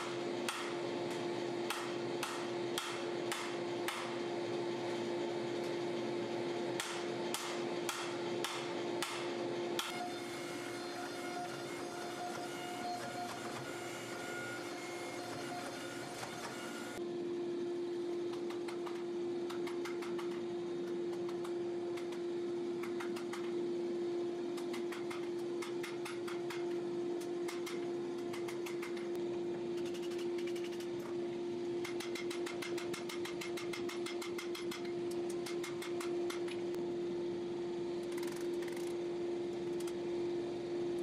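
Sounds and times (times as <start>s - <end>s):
shop machine hum: 0.0s - 41.0s
hammer striking metal on anvil: 1.7s - 4.2s, 6.8s - 10.1s.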